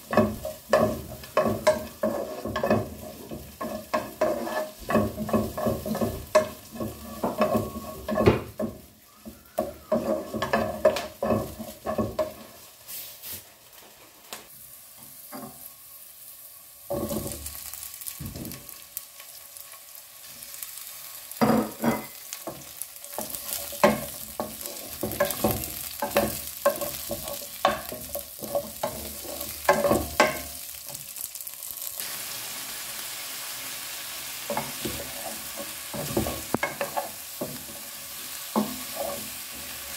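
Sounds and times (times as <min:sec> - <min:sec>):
wooden spatula scraping a pan: 0:00.0 - 0:14.3, 0:21.4 - 0:31.2, 0:34.5 - 0:39.9
food sizzling in a pan: 0:00.0 - 0:39.9.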